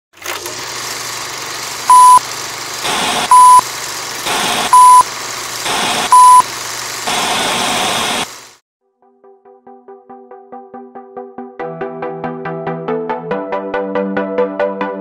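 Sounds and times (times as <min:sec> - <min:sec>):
film projector whirring: 0:00.2 - 0:08.6
short beeps: 0:01.9 - 0:02.2, 0:03.3 - 0:03.6, 0:04.7 - 0:05.0, 0:06.1 - 0:06.4.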